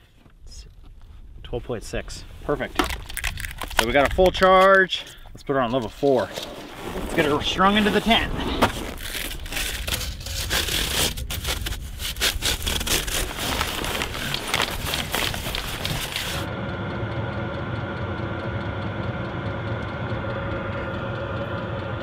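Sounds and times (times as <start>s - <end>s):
diesel heater humming: 0.3s - 22.0s
fan blowing air: 1.7s - 22.0s
foil duct crinkling: 2.8s - 4.8s, 6.0s - 16.5s.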